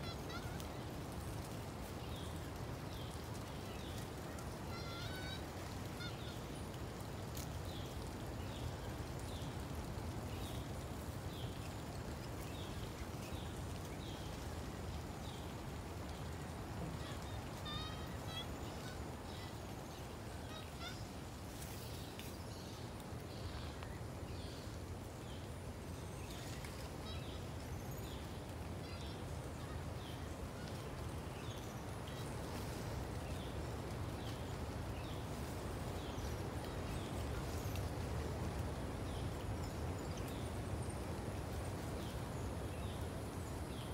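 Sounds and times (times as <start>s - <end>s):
low outdoor background noise: 0.0s - 43.9s.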